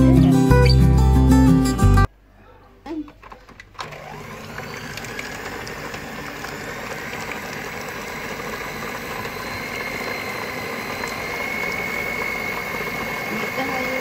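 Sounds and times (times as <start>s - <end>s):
stand mixer running: 3.8s - 14.0s.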